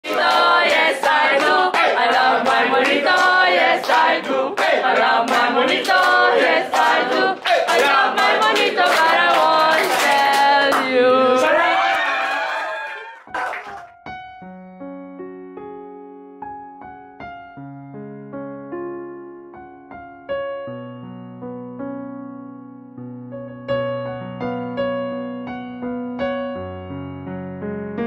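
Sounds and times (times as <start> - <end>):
group singing: 0.0 - 11.7
sharp clap-like hits: 0.1 - 10.9, 13.3 - 14.0.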